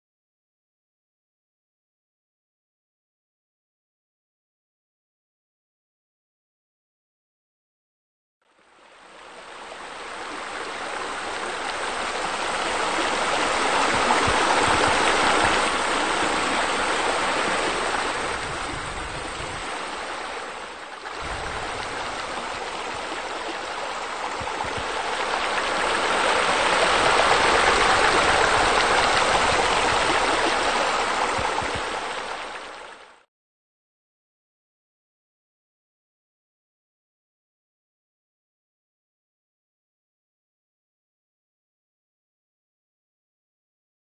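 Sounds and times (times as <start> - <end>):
rushing water: 8.5 - 33.3.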